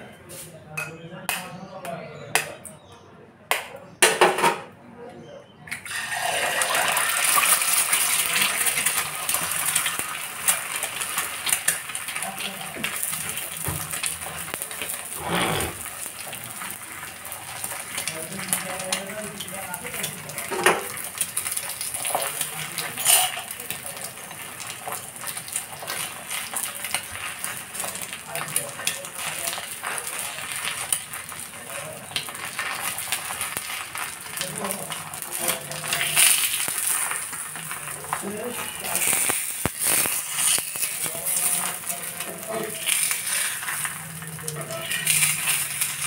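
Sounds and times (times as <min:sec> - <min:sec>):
egg sizzling on a griddle: 0:05.8 - 0:46.0
small crackles and pops: 0:07.3 - 0:15.2, 0:15.8 - 0:46.0
metal spatula scraping pan: 0:15.2 - 0:15.9.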